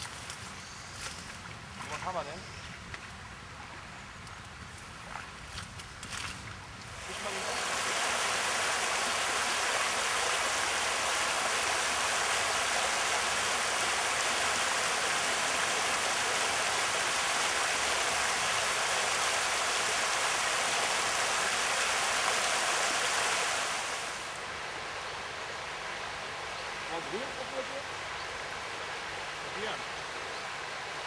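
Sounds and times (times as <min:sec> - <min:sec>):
river water rushing: 0:06.9 - 0:31.0.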